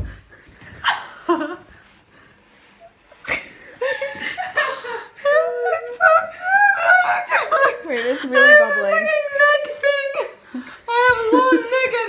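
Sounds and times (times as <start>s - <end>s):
women laughing and shrieking: 3.8s - 12.0s.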